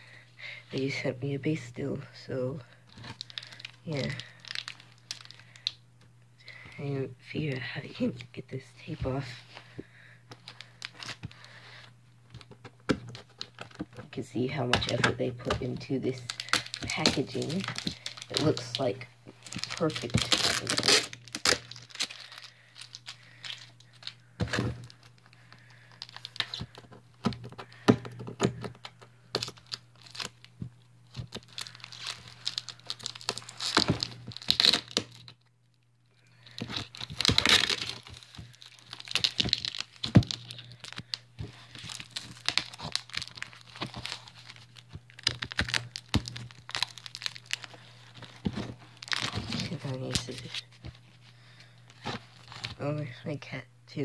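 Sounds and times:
packaging crinkling: 0:02.8 - 0:05.8, 0:08.8 - 0:52.8
packing tape tearing: 0:02.9 - 0:05.7, 0:14.8 - 0:30.4, 0:31.1 - 0:35.4, 0:36.4 - 0:50.7.

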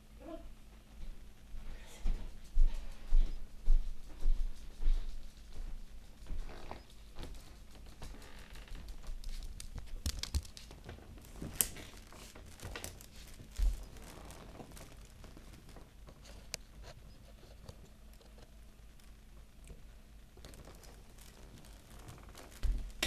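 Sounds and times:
blankets rustling: 0:10.6 - 0:16.8.

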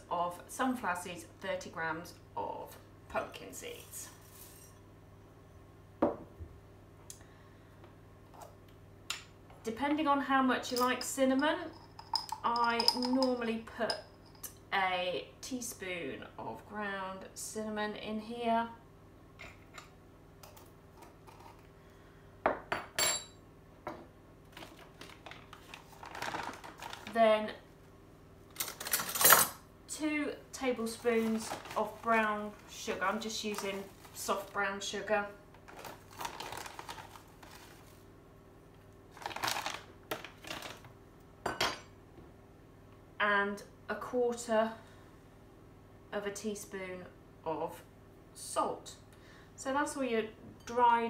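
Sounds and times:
plastic bag rustling: 0:24.5 - 0:27.2, 0:30.8 - 0:34.6, 0:35.5 - 0:38.0, 0:39.1 - 0:40.9.

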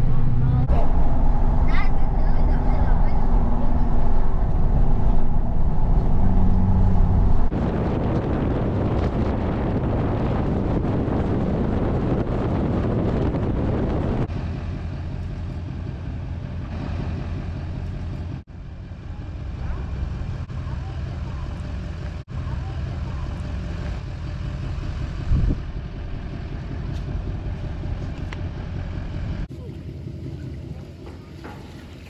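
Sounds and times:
wind rush: 0:00.0 - 0:14.7, 0:24.9 - 0:29.5
car road and engine noise: 0:00.0 - 0:32.0.

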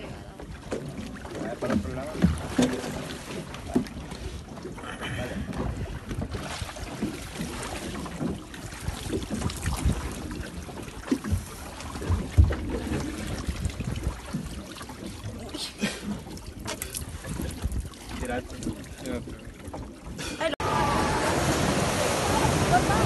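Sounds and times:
water sloshing against boat: 0:00.0 - 0:23.0
wind on microphone: 0:08.8 - 0:10.4, 0:11.3 - 0:14.4
bumps against boat hull: 0:11.1 - 0:12.9.

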